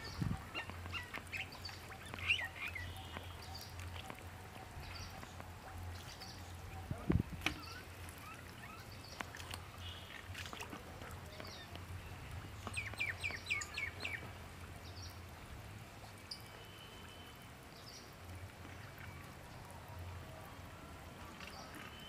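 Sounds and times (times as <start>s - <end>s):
birds calling: 0.0s - 14.3s.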